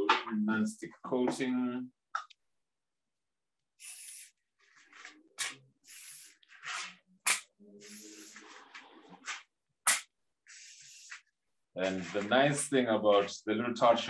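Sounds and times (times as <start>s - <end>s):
aerosol spray hissing: 3.8s - 4.4s, 5.9s - 6.4s, 7.3s - 8.4s.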